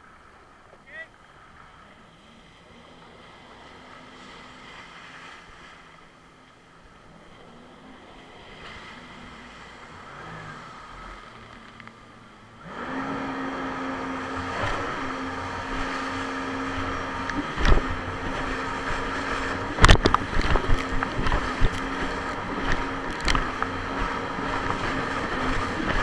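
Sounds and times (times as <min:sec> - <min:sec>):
jet ski engine droning: 0:00.0 - 0:26.0
hull slamming on waves: 0:14.3 - 0:26.0.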